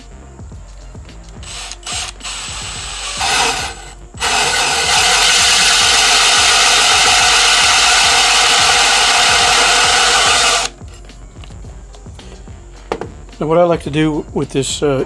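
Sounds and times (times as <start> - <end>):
power drill cutting with hole saw: 1.4 - 10.7.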